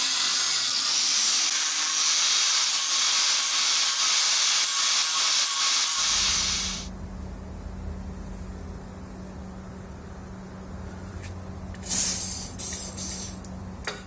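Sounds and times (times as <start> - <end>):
angle grinder cutting steel: 0.0 - 6.9.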